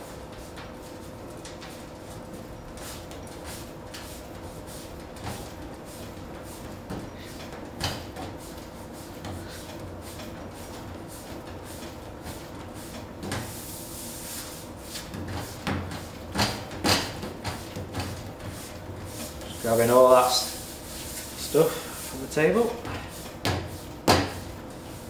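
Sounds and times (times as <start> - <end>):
dough kneaded on metal worktop: 0.0 - 25.0
knocks on worktop: 23.4 - 24.4.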